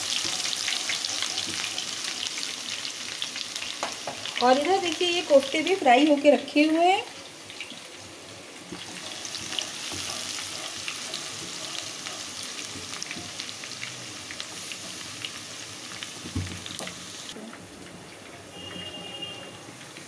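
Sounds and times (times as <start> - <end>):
spatula stirring in a pan: 0.0 - 4.4, 8.6 - 17.0
onion sizzling in hot oil: 0.0 - 20.0.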